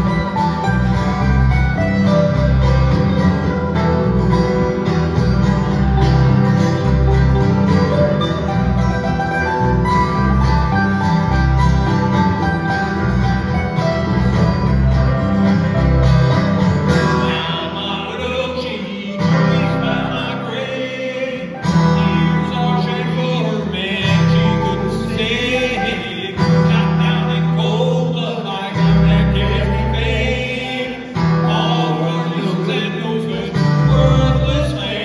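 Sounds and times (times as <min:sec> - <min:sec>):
acoustic guitars: 0:00.0 - 0:35.0
electric bass: 0:00.0 - 0:35.0
mandolin: 0:00.0 - 0:35.0
man singing: 0:17.0 - 0:35.0.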